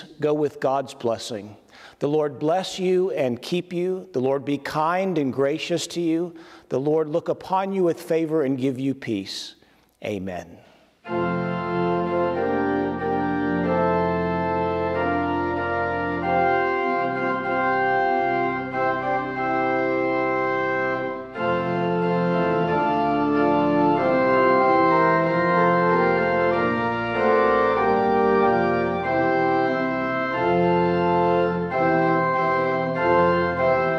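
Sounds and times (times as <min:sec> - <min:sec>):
organ playing sustained chords: 0:11.0 - 0:33.9.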